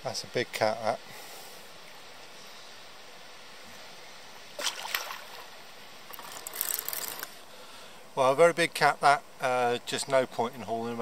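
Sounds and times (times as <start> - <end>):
low steady hiss: 0.0 - 11.0
fish splashing in water: 4.6 - 5.5.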